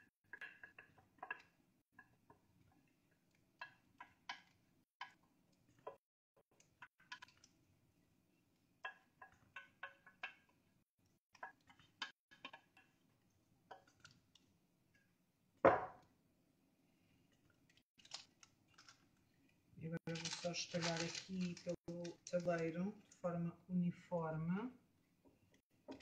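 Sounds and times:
thump: 15.7 - 16.0.

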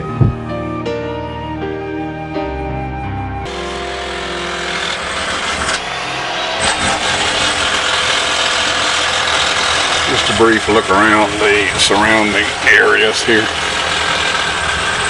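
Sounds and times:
machine running with hissing: 3.5 - 15.0.

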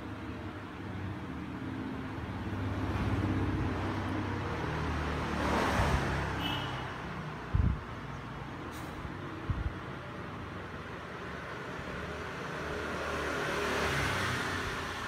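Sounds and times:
road traffic rumble: 0.0 - 15.0
vehicle passing: 1.4 - 6.4, 8.4 - 15.0.

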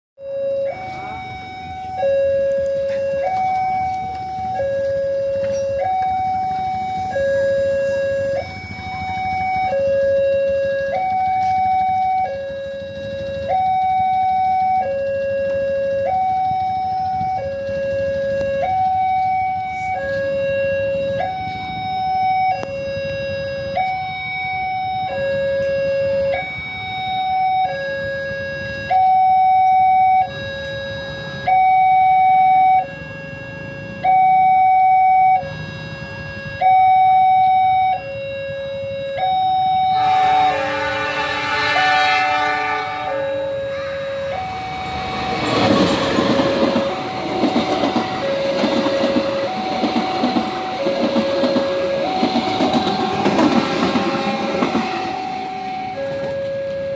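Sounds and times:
level crossing two-tone alarm: 0.2 - 56.9
train horn: 39.7 - 56.9.

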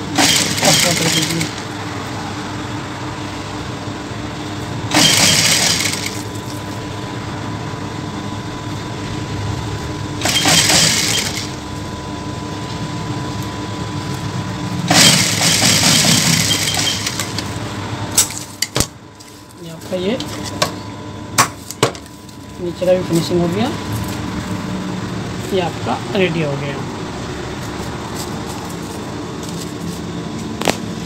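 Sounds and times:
steady hum: 0.0 - 31.0
sewing machine stitching: 0.1 - 1.6, 4.9 - 6.2, 10.2 - 11.6, 14.9 - 17.4.

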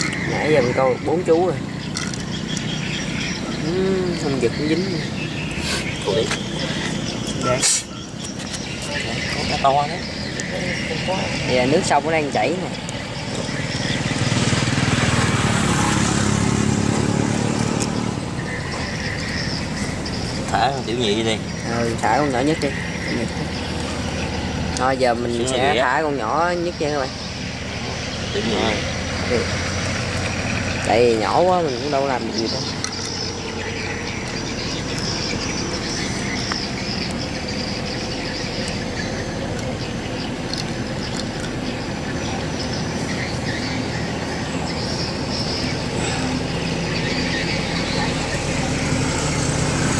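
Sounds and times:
insect chirring: 0.0 - 14.6, 26.0 - 49.5
low traffic rumble: 0.0 - 49.9
motorbike engine passing: 8.6 - 49.9.

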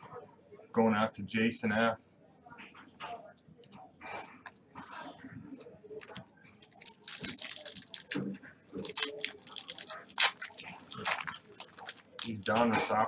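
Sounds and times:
foil wrapper crinkling and tearing: 6.6 - 12.5.

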